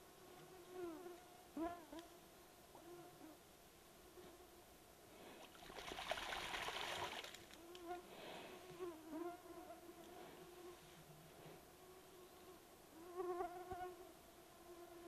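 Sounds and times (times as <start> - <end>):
water splashing: 5.5 - 7.6.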